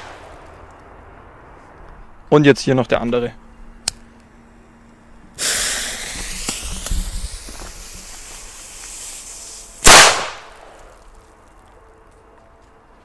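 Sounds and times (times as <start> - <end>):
fuse hissing and crackling: 4.2 - 11.2.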